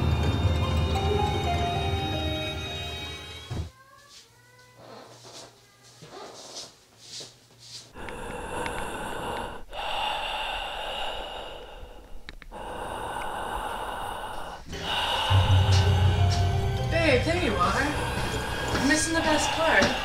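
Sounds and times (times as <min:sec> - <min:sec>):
heavy breathing: 0:07.9 - 0:16.8, 0:17.6 - 0:20.0.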